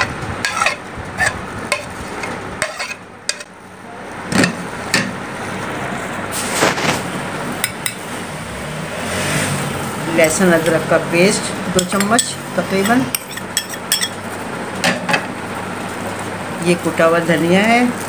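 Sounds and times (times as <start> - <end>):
metal spoon scraping and tapping: 0.0 - 3.5, 11.7 - 14.2.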